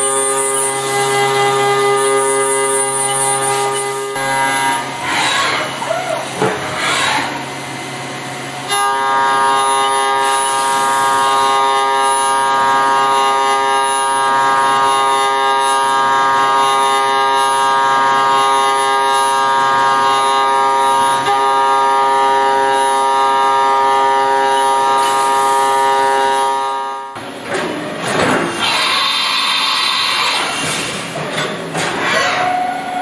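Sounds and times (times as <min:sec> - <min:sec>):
lathe whine: 0:28.6 - 0:31.0.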